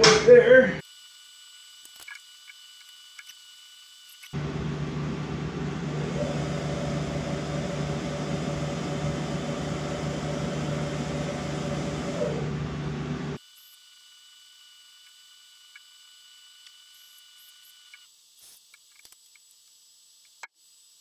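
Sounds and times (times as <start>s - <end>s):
mill spindle running: 4.3s - 13.4s.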